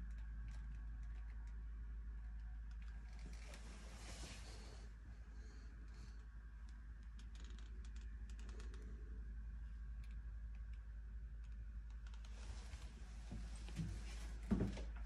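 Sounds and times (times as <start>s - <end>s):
light clicks and ticks: 0.0s - 3.6s, 5.8s - 13.0s
low steady hum: 0.0s - 15.0s.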